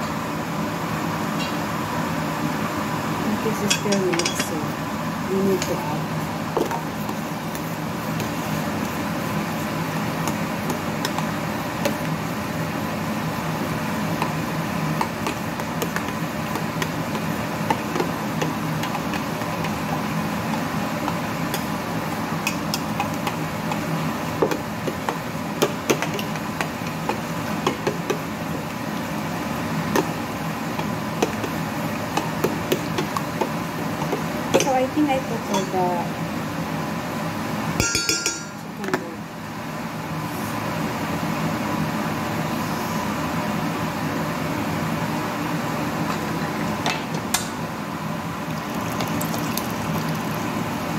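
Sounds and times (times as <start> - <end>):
mechanical hum and hiss: 0.0 - 50.9
utensil clinking on steel bowl: 3.6 - 4.6, 35.5 - 35.8, 37.8 - 38.6.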